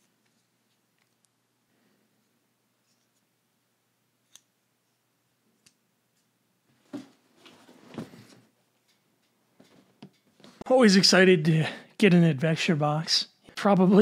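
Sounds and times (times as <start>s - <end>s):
folding knife clicks: 4.2s - 4.5s.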